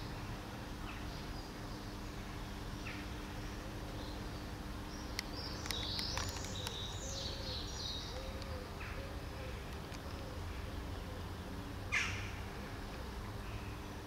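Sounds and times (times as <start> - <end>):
low street hum: 0.0 - 14.0
small birds chirping and trilling: 0.0 - 14.0
kittens eating clicks: 5.1 - 6.9.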